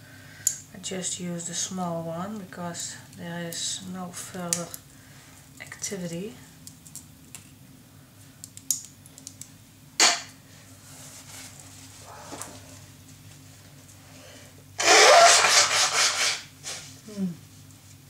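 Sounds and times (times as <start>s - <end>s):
person blowing nose: 14.8s - 16.9s.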